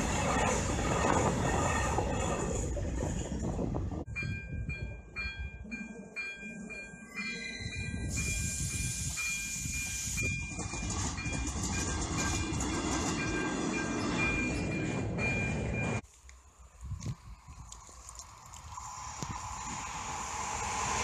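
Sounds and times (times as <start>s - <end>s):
freight train rolling past: 0.0s - 4.4s, 7.4s - 16.0s, 18.6s - 21.0s
train rumble and wheel noise: 0.0s - 21.0s
level crossing warning bell: 4.1s - 16.0s.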